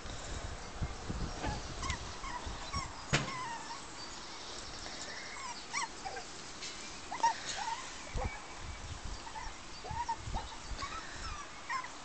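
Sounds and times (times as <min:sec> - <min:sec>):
puppies whimpering and yipping: 0:01.4 - 0:03.9, 0:05.2 - 0:06.3, 0:07.0 - 0:12.0.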